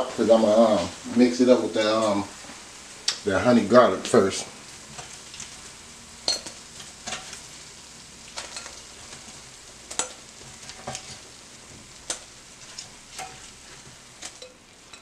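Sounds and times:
chicken wings sizzling: 0:00.0 - 0:15.0
tongs clicking on wire rack: 0:09.9 - 0:11.1, 0:12.0 - 0:13.4, 0:14.2 - 0:15.0.

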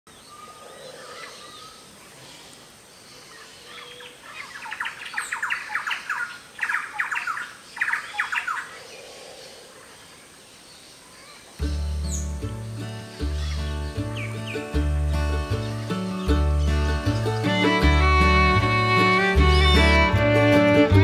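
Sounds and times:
faint background birdsong: 0:00.1 - 0:21.0
birds rapidly repeated calls: 0:03.2 - 0:10.3, 0:11.0 - 0:18.2.

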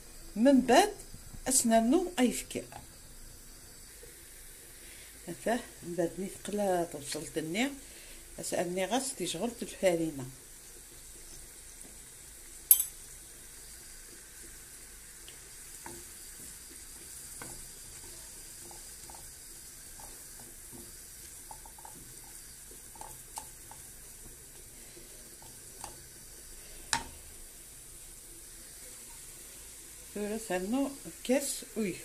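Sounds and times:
onions sizzling in a frying pan: 0:00.0 - 0:32.0
wooden spoon scraping a pan: 0:15.7 - 0:27.1.

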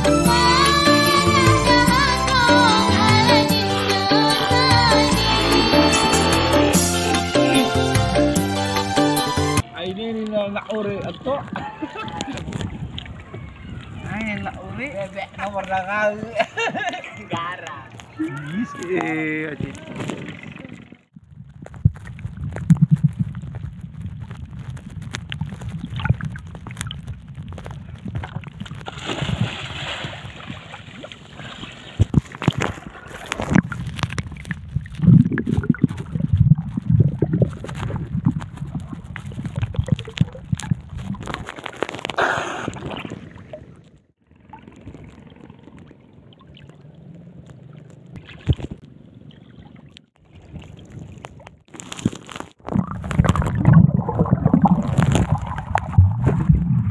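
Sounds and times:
water splashes: 0:09.6 - 0:56.9
muffled water sloshing and gurgling: 0:10.6 - 0:15.8, 0:19.6 - 0:56.9.

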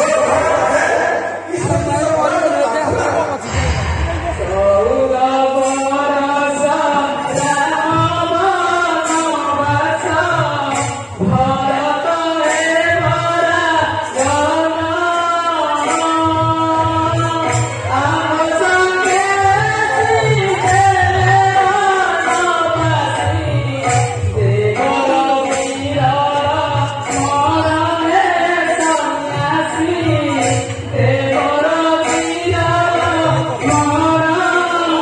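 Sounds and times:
percussion keeping steady beat: 0:00.0 - 0:35.0
person singing devotional song: 0:03.5 - 0:35.0.

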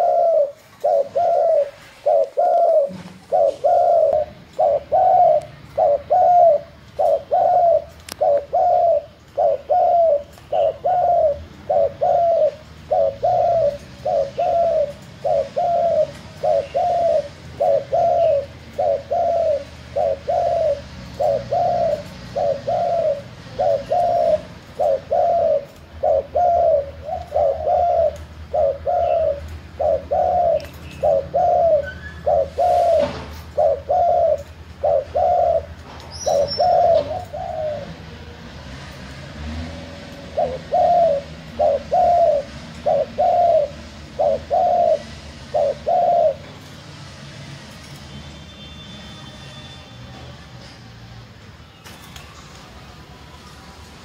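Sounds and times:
dove cooing: 0:00.0 - 0:38.4, 0:39.4 - 0:46.6.

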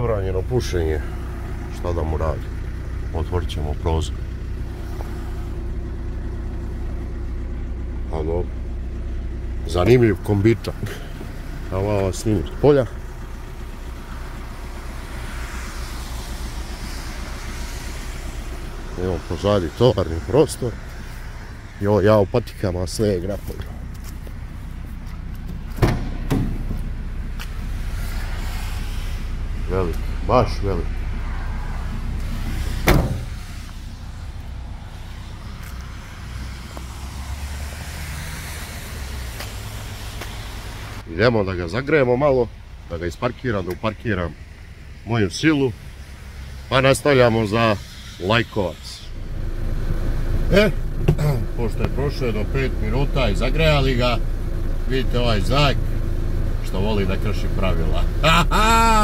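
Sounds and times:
diesel van engine idling: 0:00.0 - 0:59.0
loud bang: 0:32.8 - 0:33.4.

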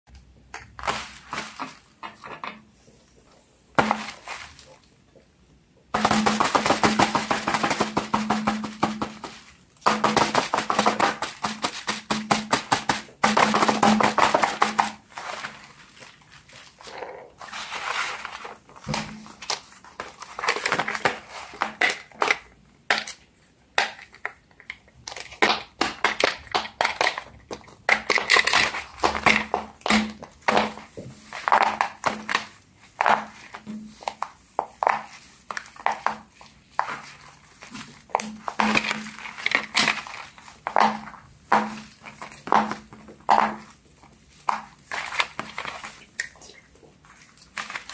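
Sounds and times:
crinkly handling noise: 0:00.5 - 0:05.3, 0:06.0 - 0:12.2, 0:13.8 - 0:25.5, 0:26.3 - 0:47.9
fidget toys tapping and clicking: 0:23.8 - 0:30.7.

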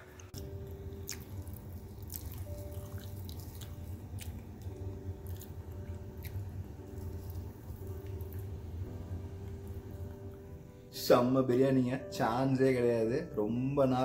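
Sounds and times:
fingers mixing wet rice: 0:00.0 - 0:08.5
steady low hum: 0:00.0 - 0:10.9.

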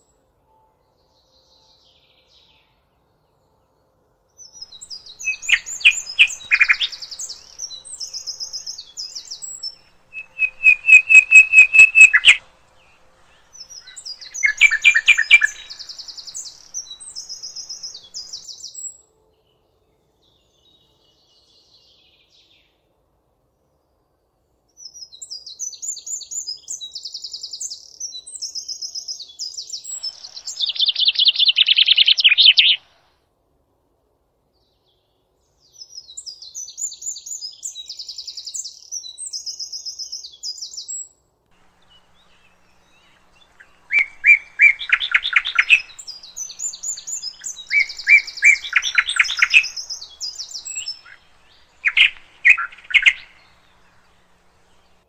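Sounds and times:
songbird singing trills: 0:04.4 - 0:19.0, 0:24.9 - 0:33.0, 0:35.7 - 0:55.0.

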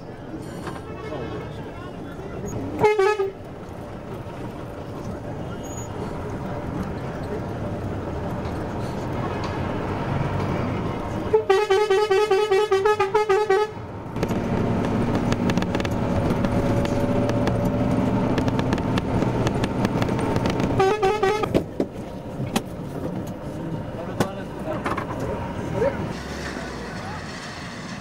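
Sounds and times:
vehicle rumble on road: 0:00.0 - 0:28.0
vehicle horn tooting: 0:02.8 - 0:03.4, 0:11.3 - 0:13.8, 0:20.8 - 0:21.5.

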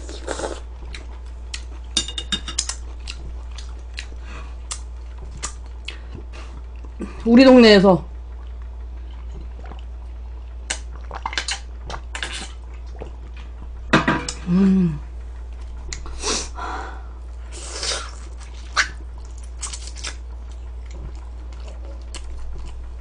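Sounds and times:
wet mouth noises and chewing: 0:00.0 - 0:02.0, 0:02.6 - 0:07.2, 0:08.2 - 0:13.8, 0:15.4 - 0:16.2, 0:17.4 - 0:23.0
steady low hum: 0:00.0 - 0:23.0
person humming: 0:14.4 - 0:15.1.

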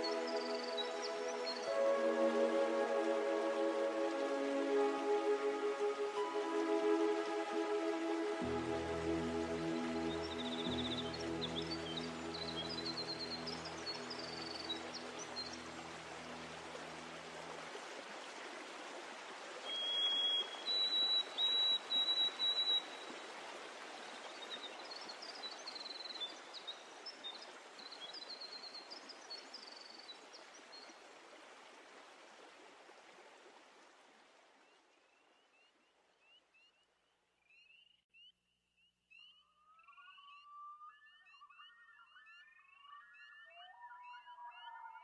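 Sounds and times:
loud high whistled calls: 0:00.0 - 0:15.6.

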